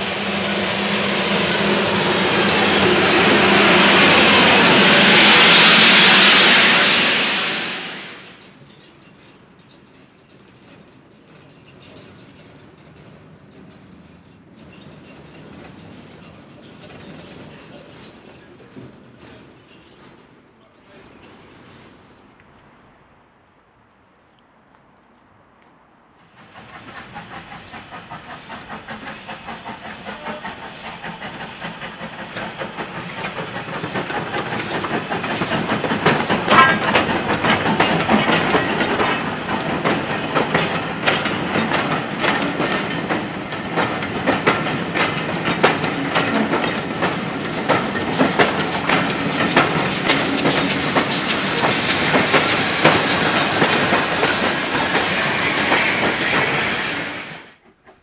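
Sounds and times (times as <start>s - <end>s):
steam train passing: 0.0s - 23.8s, 24.9s - 58.0s
wheels clattering over rail joints: 28.7s - 57.0s.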